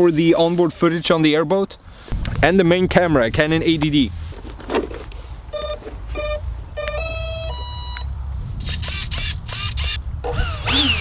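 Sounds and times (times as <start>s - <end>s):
short electronic beeps: 5.5s - 8.1s.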